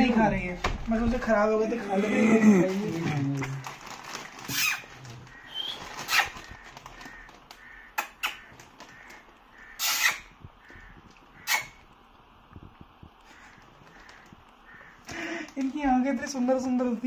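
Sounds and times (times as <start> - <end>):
crow cawing: 4.5 - 11.8, 13.2 - 15.6.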